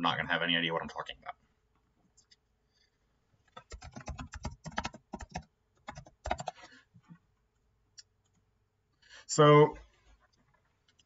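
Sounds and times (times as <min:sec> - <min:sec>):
typing on computer keyboard: 0:03.6 - 0:06.7.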